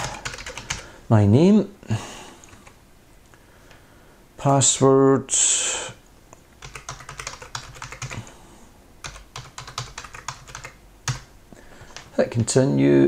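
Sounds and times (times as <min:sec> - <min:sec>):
typing on computer keyboard: 0:00.0 - 0:00.9, 0:02.4 - 0:02.8, 0:06.6 - 0:08.3, 0:09.0 - 0:11.3, 0:11.9 - 0:12.5.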